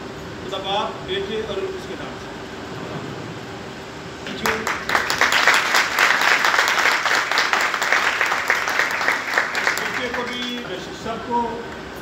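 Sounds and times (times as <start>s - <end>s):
crowd applauding: 4.3s - 10.9s.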